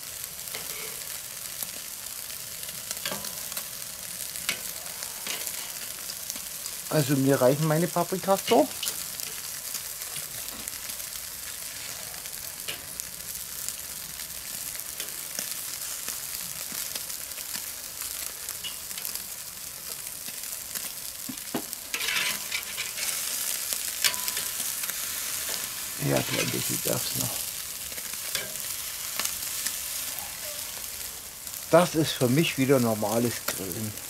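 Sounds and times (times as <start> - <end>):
meat sizzling on a grill: 0.0 - 34.0
metal tongs clicking on grate: 24.0 - 24.6, 28.3 - 29.3.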